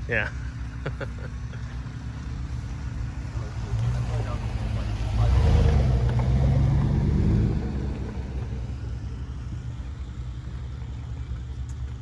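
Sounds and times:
pickup truck engine passing: 0.1 - 12.0.

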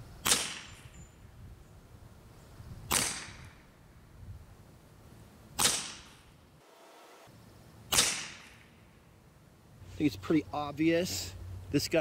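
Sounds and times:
air pistol shot: 0.2 - 0.9, 2.9 - 3.6, 5.6 - 6.3, 7.9 - 8.8.

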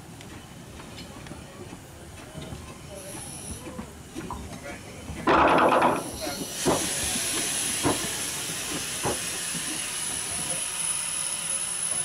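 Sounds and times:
steam locomotive hissing: 2.7 - 5.1, 5.9 - 12.0.

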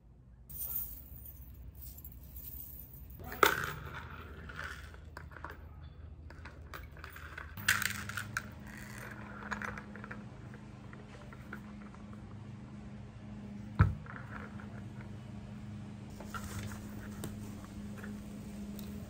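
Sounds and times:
metal chains clinking: 0.5 - 5.8, 6.4 - 9.8.

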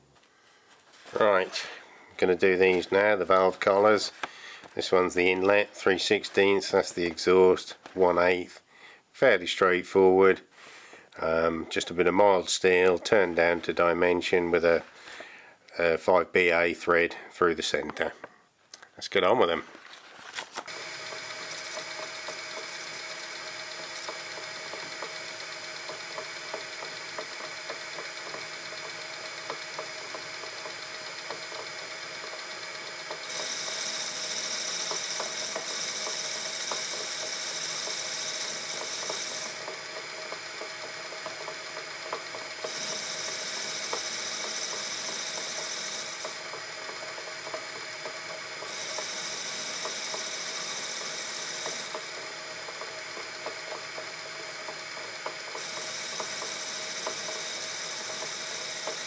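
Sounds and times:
metal lathe whining: 20.7 - 59.0.

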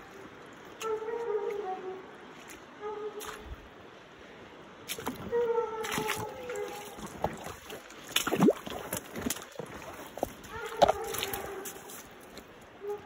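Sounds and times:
footsteps pushing through brush: 6.9 - 12.6.

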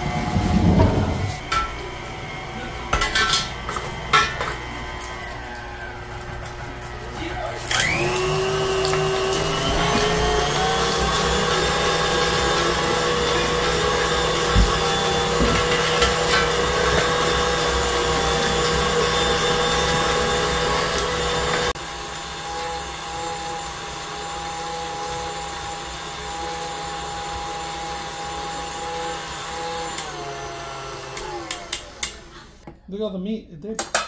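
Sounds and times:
mixer motor whining: 0.0 - 32.7
grinder knocks: 13.6 - 17.2.

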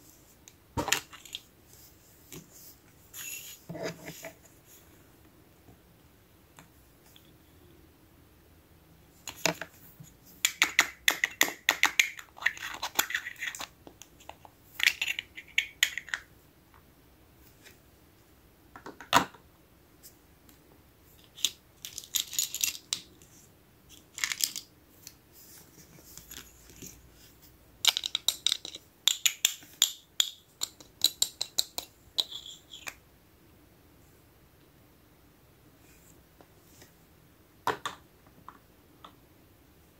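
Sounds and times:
plastic toy pot clicking and rattling: 10.4 - 16.3, 21.2 - 23.1, 23.9 - 24.7, 27.8 - 33.0.

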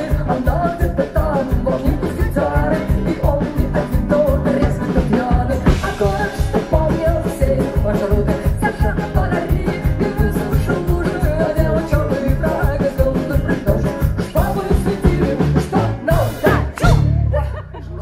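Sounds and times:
drum kit beat: 0.0 - 17.3
woman singing: 0.0 - 17.6
acoustic-electric guitar: 0.0 - 18.0
electric bass: 0.0 - 18.0.

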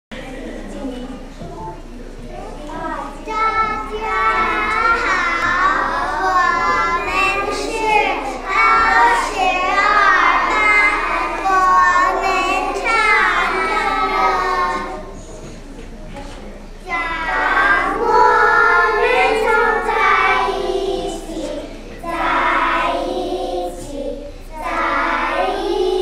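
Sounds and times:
children singing: 3.1 - 15.5, 16.8 - 26.0.

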